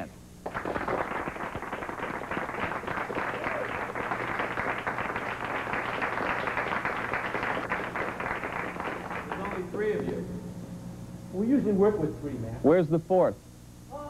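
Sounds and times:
audience applauding: 0:00.4 - 0:10.2.

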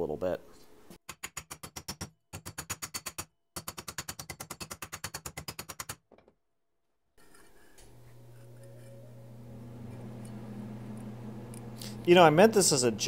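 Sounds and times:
low steady hum: 0:07.8 - 0:13.0.

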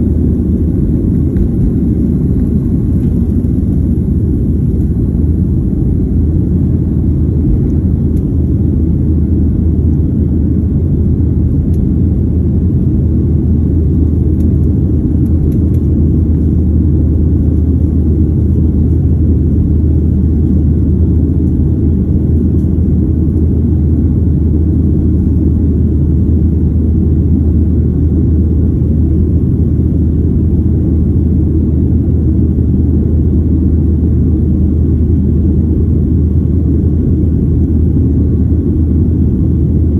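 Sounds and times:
jet engines rumbling in cabin: 0:00.0 - 0:39.9.

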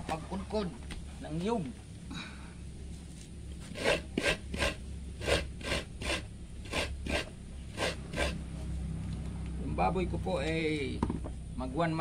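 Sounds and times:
coconut scraping on grater: 0:03.6 - 0:08.5.

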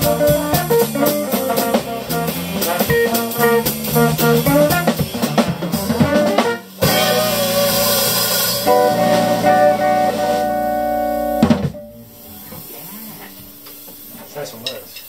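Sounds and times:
drum hit: 0:00.0 - 0:12.0
jazz combo playing: 0:00.0 - 0:14.2
washing cymbals: 0:00.0 - 0:15.0.

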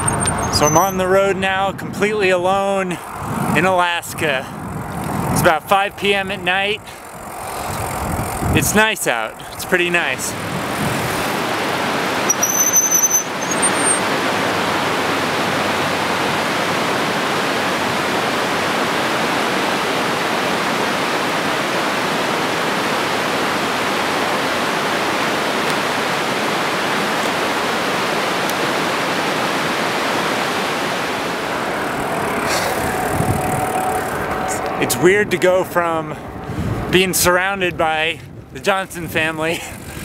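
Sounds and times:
river rushing over gravel: 0:07.0 - 0:32.6.

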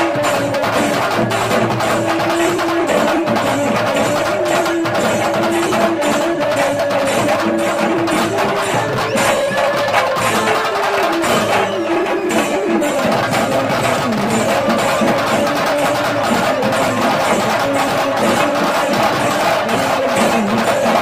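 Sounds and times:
drums beaten with sticks: 0:00.0 - 0:21.0.

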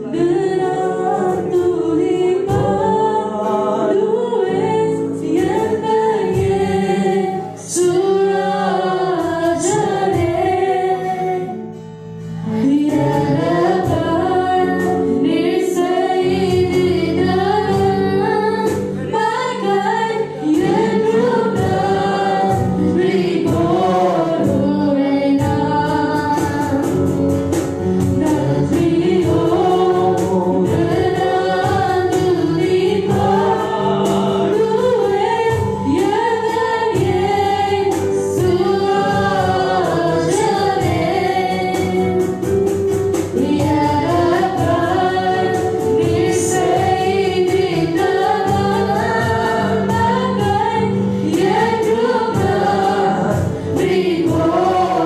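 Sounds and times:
acoustic guitar: 0:00.0 - 0:55.0
woman singing backing vocals: 0:00.0 - 0:55.0
woman singing worship song: 0:00.0 - 0:55.0
rhythmic beat: 0:20.4 - 0:55.0.

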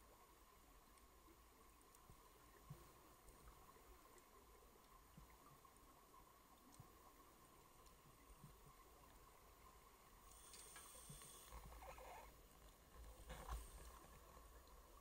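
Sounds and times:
muffled scuba regulator breathing: 0:10.3 - 0:11.8.

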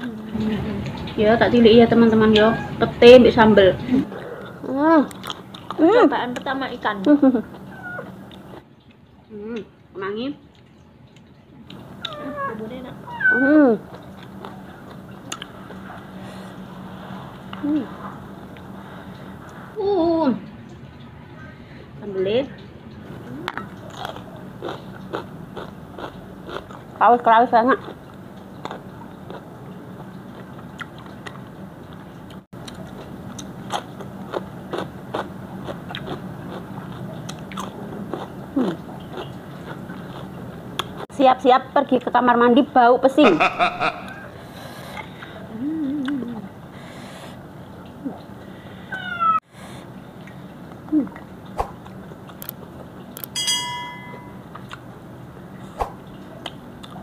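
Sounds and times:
low steady background hum: 0:00.0 - 0:57.0
cat meowing: 0:02.4 - 0:02.8, 0:12.1 - 0:13.5, 0:48.9 - 0:49.4
crunching bites and chewing: 0:23.6 - 0:26.9, 0:32.6 - 0:41.0.

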